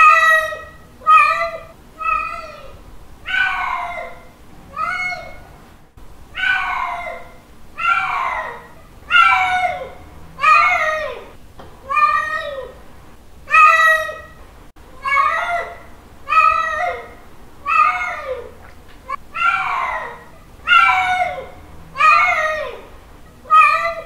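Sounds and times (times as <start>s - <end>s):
cat meowing: 3.2s - 5.4s, 7.8s - 12.7s, 17.6s - 22.8s.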